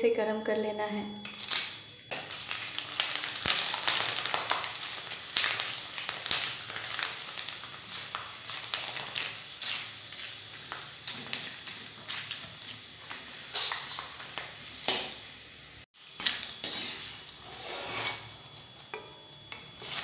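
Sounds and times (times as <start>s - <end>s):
chips sizzling in hot oil: 1.3s - 20.0s
spatula clicking and scraping: 16.2s - 18.3s.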